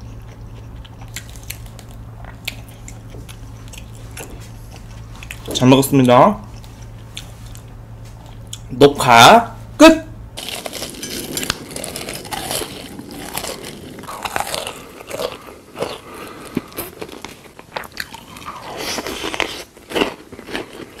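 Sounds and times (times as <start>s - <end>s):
crunchy food chewing: 0.0s - 5.6s, 10.4s - 21.0s.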